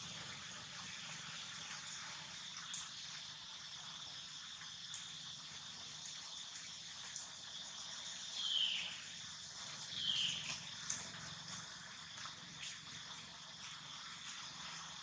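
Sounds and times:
high-pitched insect drone: 0:02.9 - 0:10.8.

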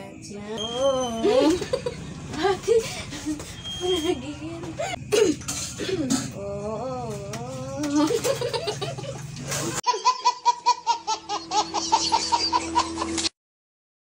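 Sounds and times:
child singing: 0:06.4 - 0:08.2
baby laughing: 0:07.8 - 0:13.3.

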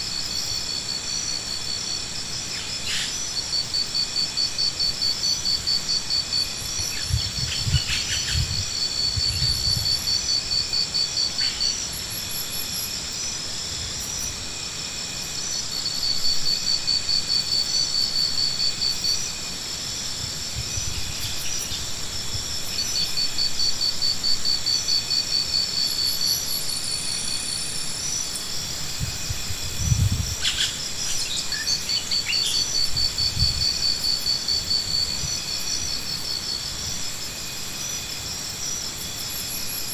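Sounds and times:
high insect hum: 0:00.0 - 0:39.9
insects chirping in pulses: 0:00.0 - 0:39.9.

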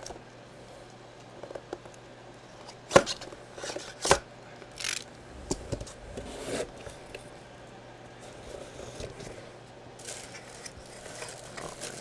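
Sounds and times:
short scrape: 0:04.8 - 0:07.6.

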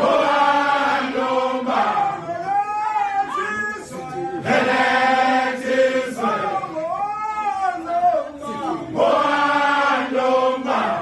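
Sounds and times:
men chanting together: 0:00.0 - 0:02.4, 0:03.9 - 0:06.8, 0:08.4 - 0:11.0.

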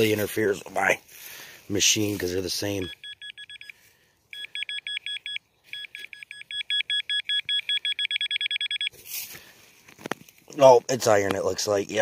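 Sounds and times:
metal detector beeping: 0:02.5 - 0:09.1.

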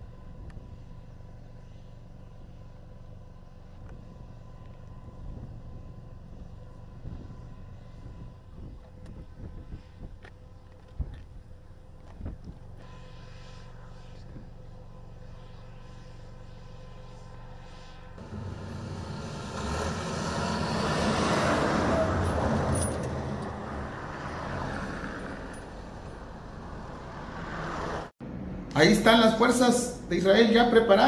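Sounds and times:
heavy truck driving by: 0:14.8 - 0:30.4.

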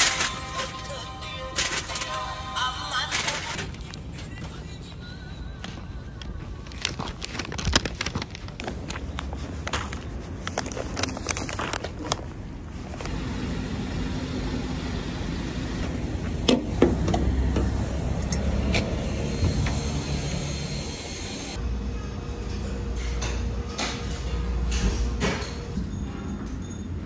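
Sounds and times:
paper bag rustling: 0:00.0 - 0:04.4, 0:05.9 - 0:13.1
street traffic rumble: 0:02.7 - 0:25.2.

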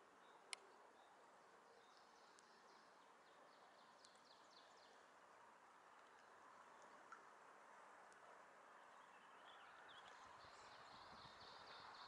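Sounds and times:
small birds chirping: 0:00.0 - 0:07.3, 0:08.0 - 0:12.0
outdoor background hiss: 0:00.0 - 0:12.0.

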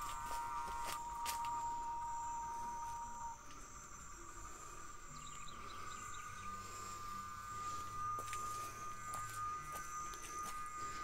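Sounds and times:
cicadas singing: 0:00.0 - 0:11.0.

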